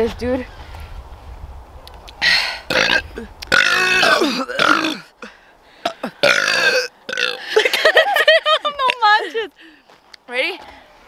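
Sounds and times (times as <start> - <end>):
woman burping loudly: 2.6 - 5.2, 5.8 - 7.9.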